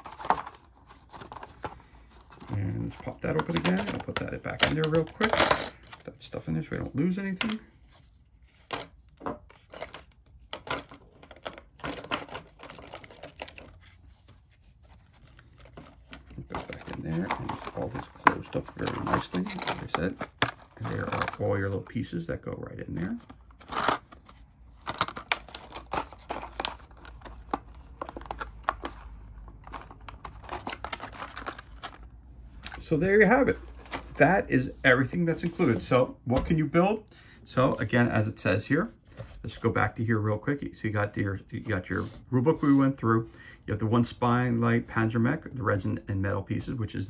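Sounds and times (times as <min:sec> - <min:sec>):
plastic blister pack crinkling: 0:00.0 - 0:06.2, 0:09.4 - 0:22.2, 0:22.9 - 0:33.0.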